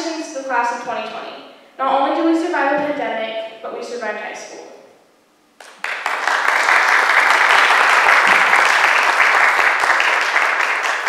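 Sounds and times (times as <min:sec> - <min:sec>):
applause: 0:05.6 - 0:11.0.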